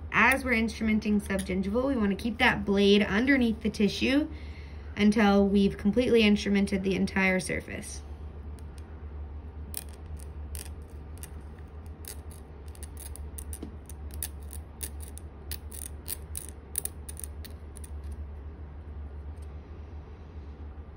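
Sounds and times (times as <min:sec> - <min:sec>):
steady low hum: 0:00.0 - 0:20.9
metal tool clicking on plastic teeth: 0:09.8 - 0:11.4, 0:12.0 - 0:18.2.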